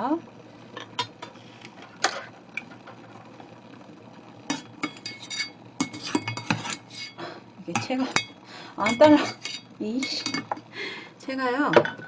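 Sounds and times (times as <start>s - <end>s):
mesh strainer clinking on metal pot: 7.8s - 10.6s.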